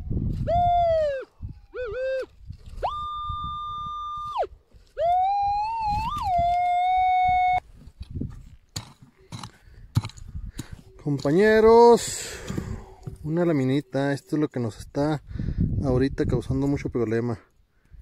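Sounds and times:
metal detector beeping tones: 1.8s - 7.6s.

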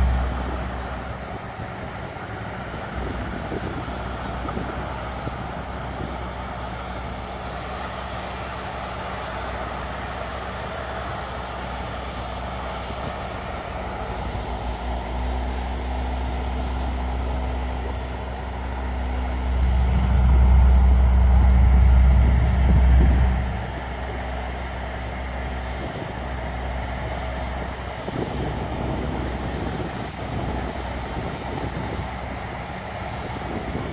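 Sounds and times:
distant diesel machinery engines: 0.0s - 33.9s
deep low rumble: 13.5s - 32.5s.

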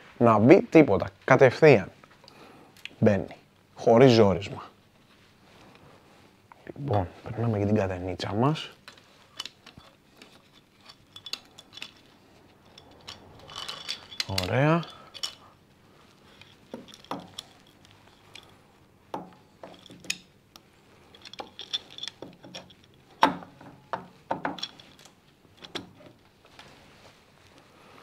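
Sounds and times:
metallic clinks of tools and parts: 8.8s - 26.2s.

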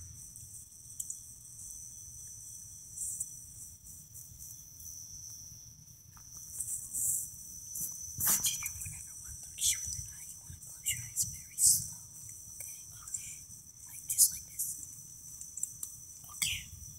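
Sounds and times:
crickets trilling: 0.0s - 16.9s
scuffing noise: 7.8s - 8.6s.

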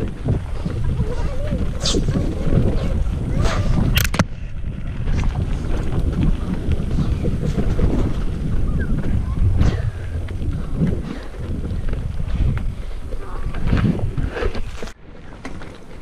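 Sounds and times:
mountain bike rumbling on dirt trail: 0.0s - 16.0s
wheels knocking on roots: 0.0s - 16.0s
wind buffeting microphone: 0.0s - 16.0s.

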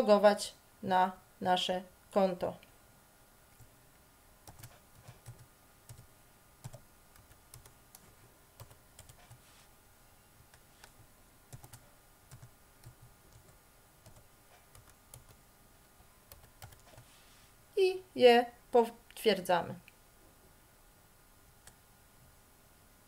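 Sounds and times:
typing on keyboard: 4.4s - 9.4s, 10.5s - 15.4s, 16.3s - 17.0s.

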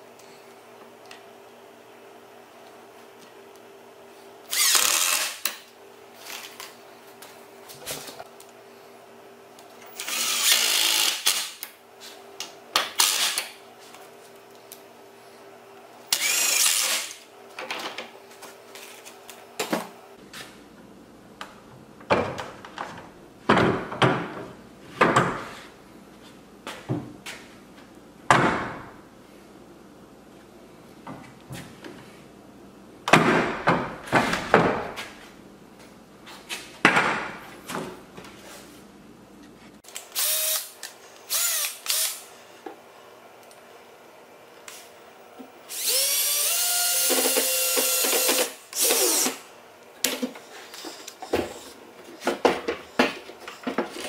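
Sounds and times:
impact driver driving screws: 4.5s - 5.5s, 10.0s - 11.6s, 45.7s - 49.4s.

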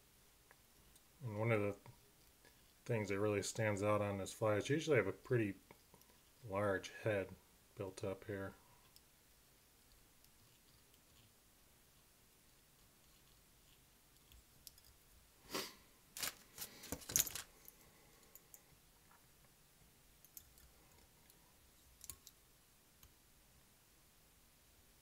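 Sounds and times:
small tools clicking and rattling: 14.2s - 15.1s, 16.2s - 18.6s.

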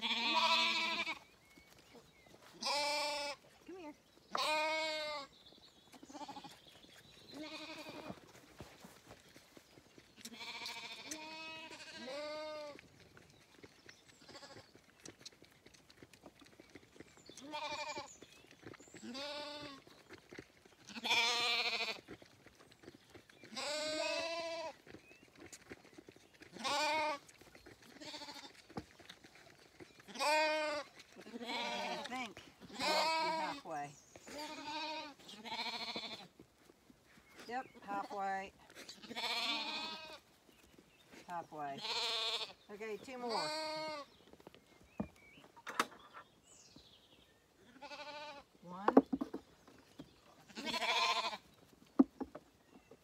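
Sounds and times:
lambs bleating: 0.0s - 1.2s, 2.6s - 3.4s, 4.3s - 5.3s, 6.1s - 6.6s, 7.3s - 8.2s, 10.2s - 12.8s, 17.4s - 18.1s, 19.0s - 19.8s, 20.8s - 22.0s, 23.5s - 24.8s, 26.6s - 27.3s, 28.0s - 28.6s, 30.1s - 36.3s, 39.0s - 40.2s, 41.7s - 42.6s, 43.2s - 44.1s, 47.7s - 48.5s, 50.5s - 51.4s.

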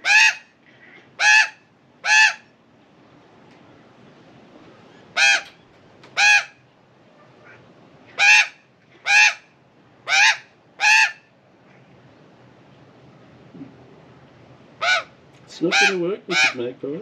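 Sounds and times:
magpie squawking: 5.2s - 5.5s, 6.2s - 6.6s, 8.1s - 9.4s, 10.1s - 11.2s, 14.8s - 15.1s, 15.7s - 16.6s.

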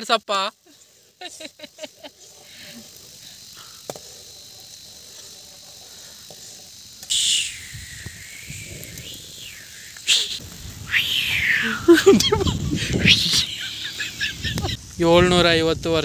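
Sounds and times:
pot boiling hiss: 0.0s - 16.0s
loud high hiss: 4.6s - 16.0s
falling wavering whistle: 7.1s - 14.8s.

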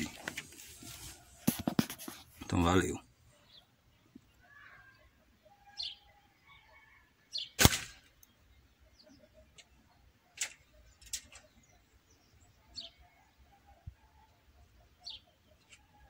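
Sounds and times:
air rifle firing: 7.6s - 8.1s.

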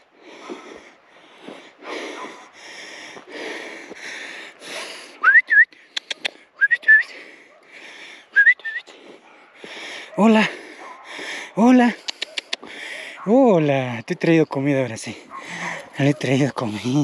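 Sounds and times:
heavy breathing: 0.0s - 13.3s, 15.2s - 17.0s
person whistling to call: 5.2s - 5.8s, 6.6s - 7.1s, 8.4s - 8.9s
sharp clicks: 5.9s - 6.4s, 12.0s - 12.7s.

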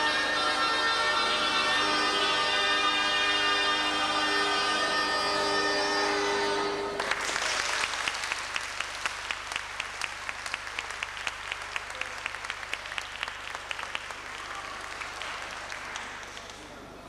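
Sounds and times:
bagpipe drone: 0.0s - 7.0s
audience applause: 6.9s - 16.9s.

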